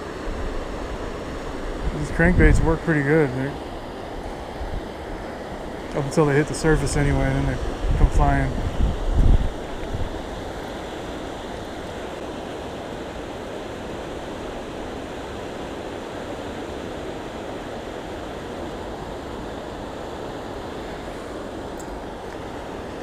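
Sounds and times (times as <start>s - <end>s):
floodwater rushing: 0.0s - 23.0s.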